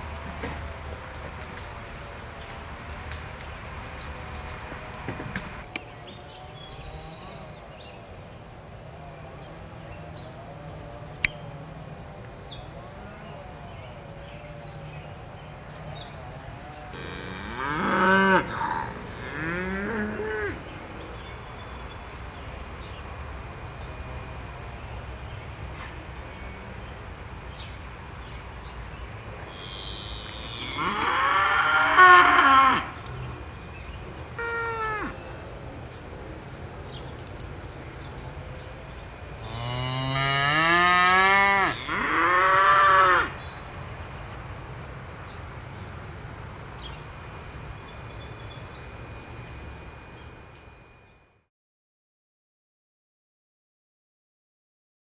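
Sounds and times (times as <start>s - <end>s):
cattle mooing: 16.9s - 20.6s, 29.5s - 33.0s, 39.4s - 43.3s.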